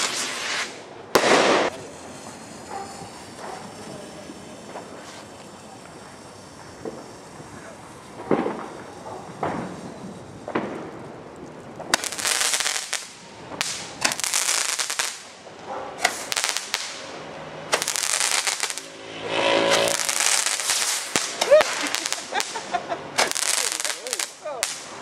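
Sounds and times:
firework bang: 0:00.0 - 0:11.0, 0:15.9 - 0:24.8
firework pops: 0:00.0 - 0:15.2, 0:16.0 - 0:17.0, 0:23.2 - 0:24.9
fireworks crackling: 0:00.0 - 0:25.0.

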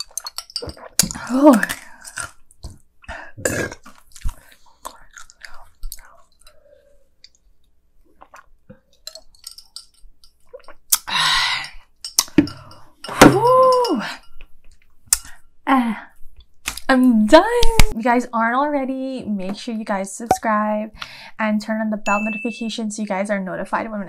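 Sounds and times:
soft chewing: 0:03.8 - 0:11.1.

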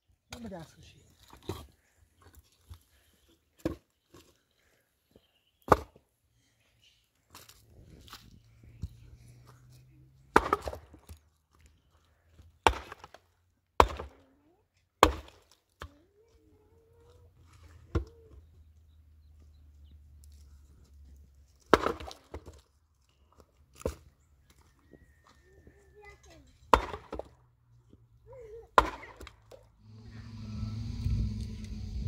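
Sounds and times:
pickaxe striking stony ground: 0:10.3 - 0:11.2, 0:12.6 - 0:13.2, 0:13.8 - 0:14.2, 0:15.0 - 0:15.5, 0:21.6 - 0:22.6, 0:26.7 - 0:27.4, 0:28.8 - 0:29.3.

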